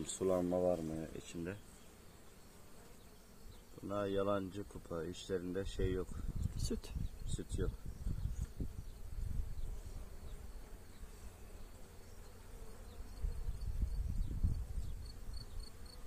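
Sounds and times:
honeybees buzzing: 0.0s - 16.0s.

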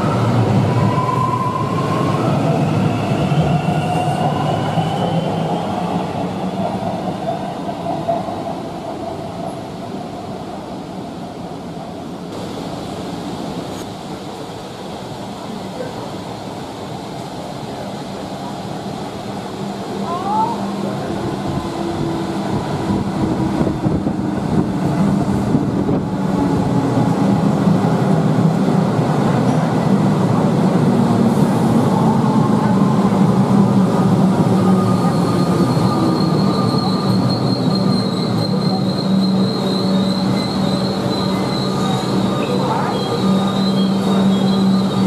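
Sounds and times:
electric train slowing to a stop: 0.0s - 45.0s
high wheel squeal: 34.6s - 45.0s.

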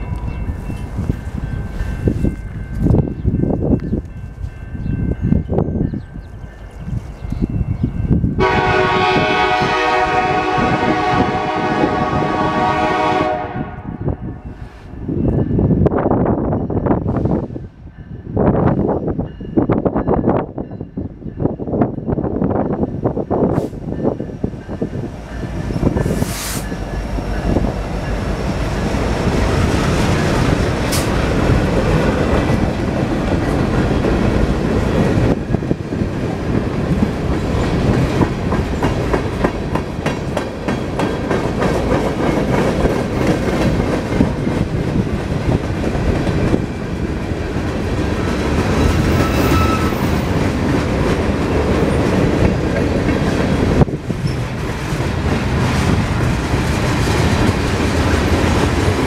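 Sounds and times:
diesel locomotives passing: 0.0s - 59.0s
train wheels clacking: 23.5s - 59.0s.

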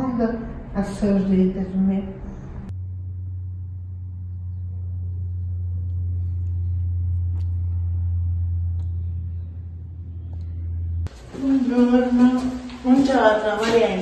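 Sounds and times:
steady low drone: 2.2s - 11.8s.

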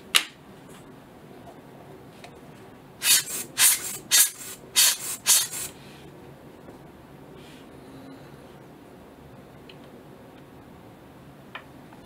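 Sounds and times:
rubber bulb blower puffs: 3.0s - 5.8s.

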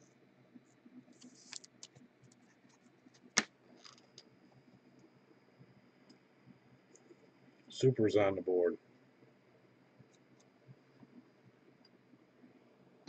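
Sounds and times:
plastic card sleeve rustling: 1.2s - 1.9s, 3.2s - 4.2s.

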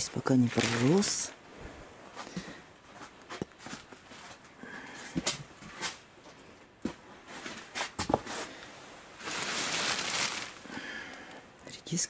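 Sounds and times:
plastic film rustling and crinkling: 0.0s - 1.5s, 7.2s - 11.3s.

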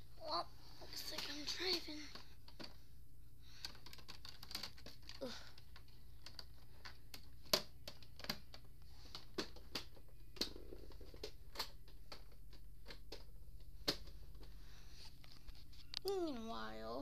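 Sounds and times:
plastic toys clicking and tapping: 3.5s - 14.5s.

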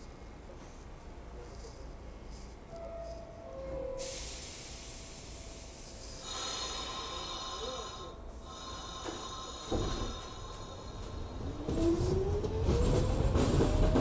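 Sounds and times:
high-pitched train whine: 2.7s - 14.0s
hiss of air: 4.0s - 11.4s.

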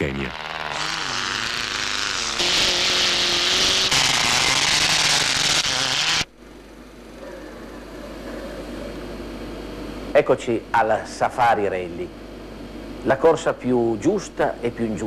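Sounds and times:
steady room hum: 0.0s - 15.0s
car engine running: 0.3s - 6.3s.

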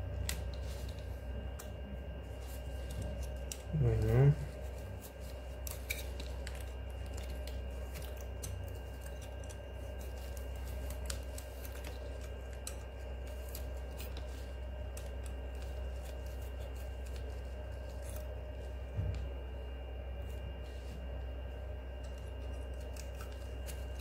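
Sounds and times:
steady low hum: 0.0s - 24.0s
knife cutting cactus spines: 2.6s - 18.5s, 22.0s - 24.0s.

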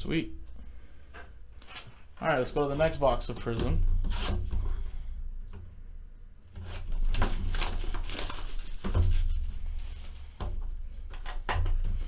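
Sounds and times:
shrink-wrap crinkling and tearing: 6.6s - 10.2s.

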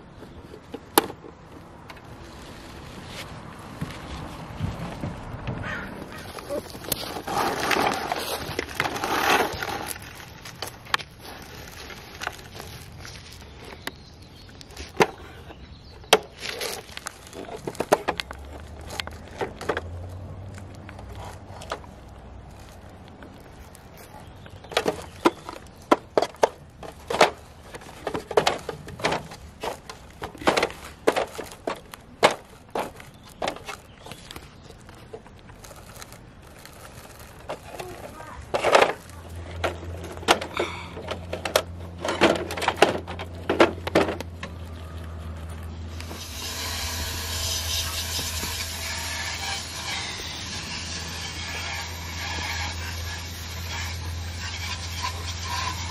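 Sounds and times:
plastic parts clicking and rattling: 6.3s - 46.4s.

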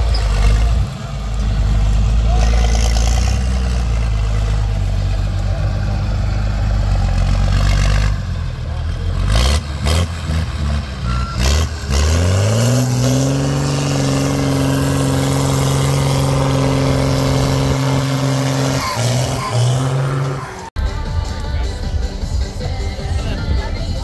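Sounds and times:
diesel truck engine revving: 0.0s - 24.0s.

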